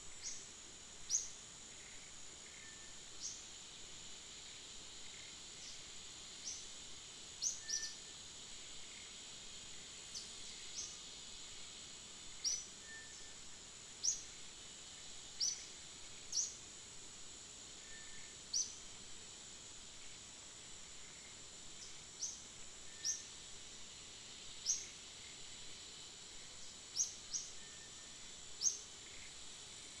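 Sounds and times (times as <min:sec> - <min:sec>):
high-pitched insect drone: 0:04.3 - 0:06.8, 0:07.4 - 0:09.1, 0:12.3 - 0:16.6, 0:17.8 - 0:18.8, 0:19.9 - 0:30.0.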